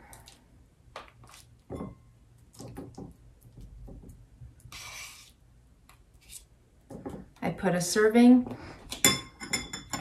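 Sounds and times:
spoon scraping: 4.7 - 5.4.

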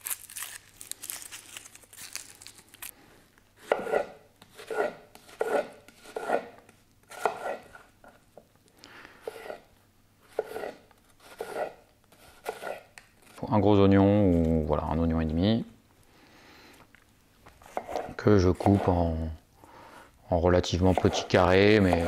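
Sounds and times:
dry onion skin crackling: 0.0 - 3.0
knife chopping on wooden board: 3.6 - 6.5, 7.1 - 7.7, 17.7 - 18.9, 20.8 - 22.0.

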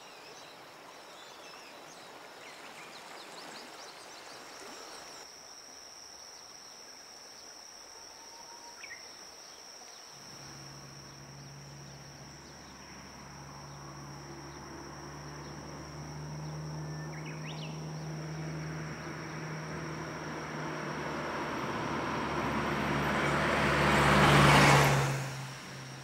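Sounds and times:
insects trilling: 0.0 - 26.0
bird chirps: 16.4 - 19.4.

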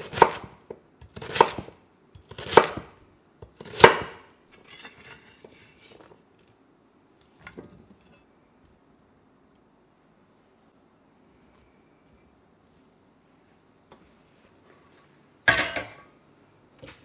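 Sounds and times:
knife chopping on wooden board: 0.0 - 4.2
knife scraping on board: 4.5 - 6.1.

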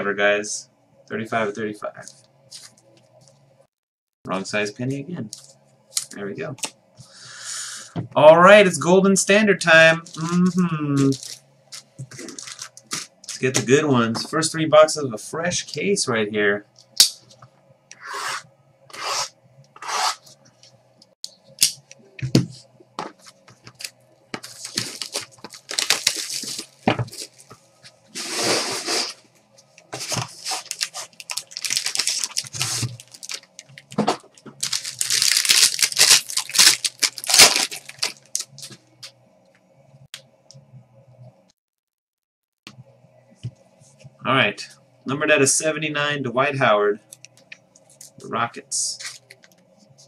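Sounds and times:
tearing and crinkling wrappers: 11.0 - 13.5, 23.8 - 27.5, 30.0 - 38.8
faint steady hum: 42.7 - 50.0.

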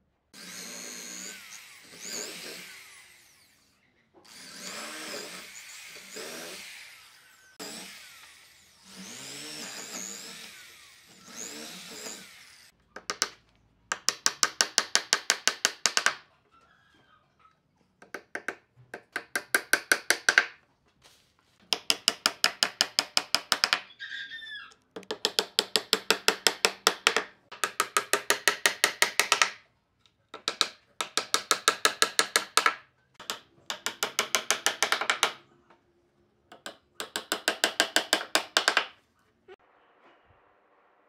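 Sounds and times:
brief squeak: 16.5 - 17.6.

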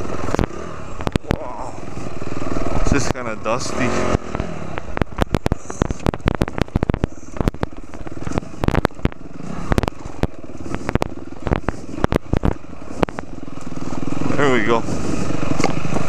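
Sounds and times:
dirt bike engine running: 0.0 - 16.0
sharp irregular knocks and clacks: 4.0 - 13.7, 15.5 - 16.0.

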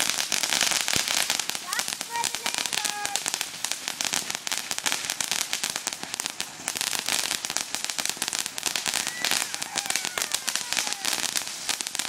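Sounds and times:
firework crackling: 0.0 - 12.0
firework whistle: 8.1 - 12.0.

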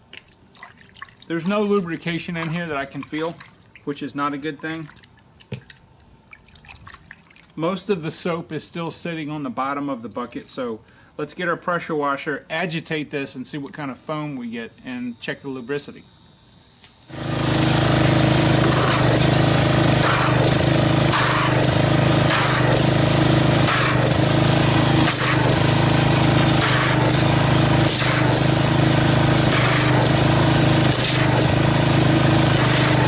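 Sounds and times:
water jetting into a bucket: 0.2 - 7.6, 17.1 - 33.0
pressure washer running: 1.3 - 5.6, 17.1 - 33.0.

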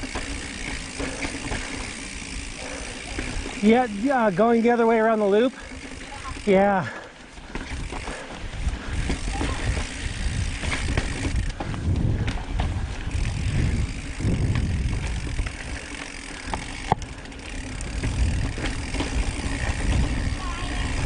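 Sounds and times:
bike rattling and ticking: 0.0 - 21.0
tyres rumbling over rocks: 7.3 - 21.0
wind buffeting microphone: 7.6 - 21.0.

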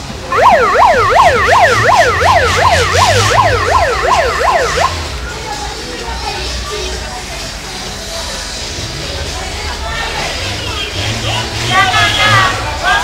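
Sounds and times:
low vehicle rumble: 0.0 - 8.0
electronic siren yelping: 0.3 - 5.1.

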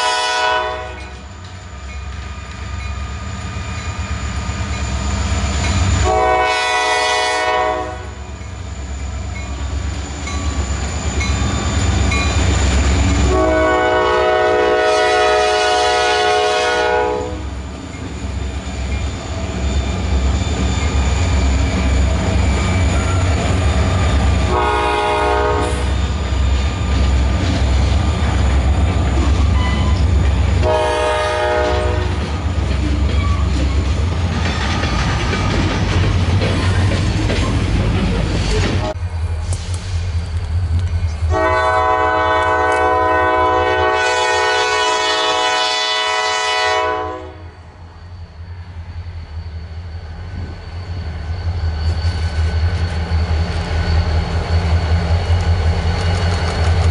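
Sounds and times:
locomotive air horn blasts: 0.0 - 1.2, 6.0 - 8.3, 13.2 - 17.5, 24.4 - 26.0, 30.6 - 32.2, 41.3 - 47.6
diesel locomotive engines rumbling: 0.0 - 56.9
train wheel noise: 0.0 - 56.9.

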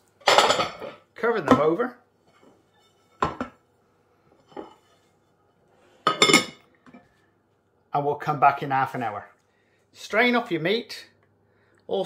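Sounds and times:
ceramic plates clinking: 0.2 - 1.0, 6.1 - 6.6.

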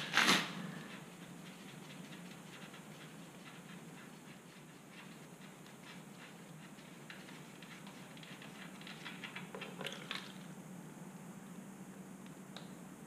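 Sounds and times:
low steady hiss: 0.0 - 13.0
faint ticks and rubbing: 0.8 - 10.2.

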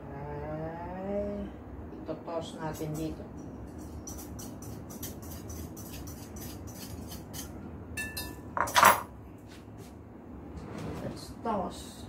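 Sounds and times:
dishes clattering: 8.0 - 9.1
ringing ceramic clink: 8.0 - 9.1.

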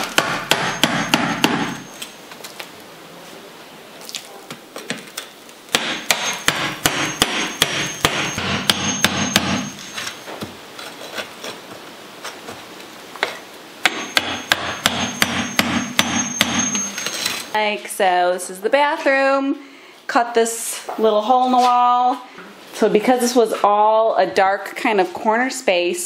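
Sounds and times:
hammer striking steel chisel: 0.0 - 2.1, 5.7 - 10.2, 13.8 - 17.5.

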